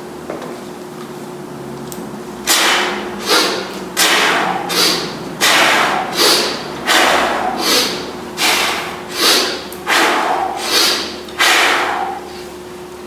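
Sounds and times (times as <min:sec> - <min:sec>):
man breathing hard: 0:03.2 - 0:12.6.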